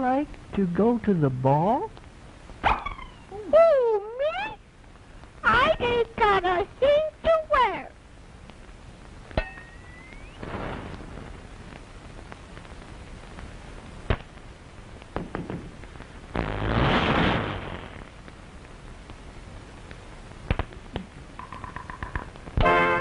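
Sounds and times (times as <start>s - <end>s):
soundtrack hiss: 0.0s - 23.0s
cartoon pops: 2.6s - 3.2s, 16.4s - 18.2s
sharp crack: 8.5s - 19.2s, 19.8s - 21.2s
loud hissing burst: 10.3s - 11.5s, 15.2s - 18.2s.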